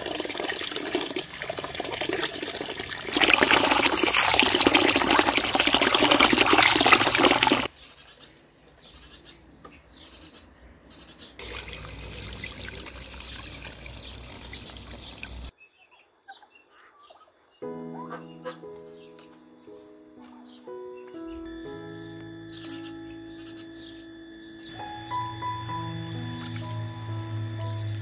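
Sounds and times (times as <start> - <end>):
hands washing rice: 0.0 - 7.7, 11.4 - 15.5
water running into basin: 0.0 - 7.7, 11.4 - 15.5
background noise: 7.7 - 24.8.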